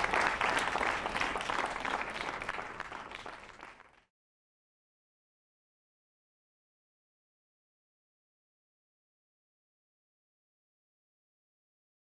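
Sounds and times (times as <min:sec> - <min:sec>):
audience applause: 0:00.0 - 0:04.1.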